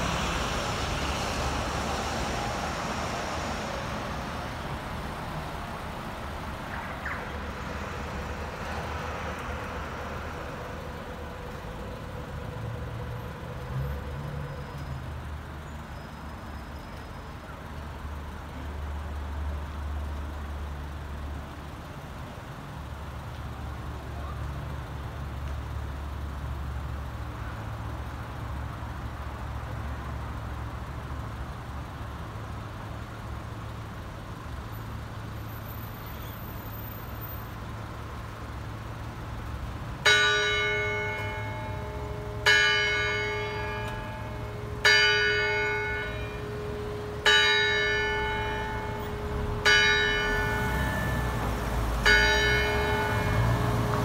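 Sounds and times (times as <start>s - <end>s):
clock tower bell striking: 40.0s - 54.0s
low steady rumble: 40.1s - 54.0s.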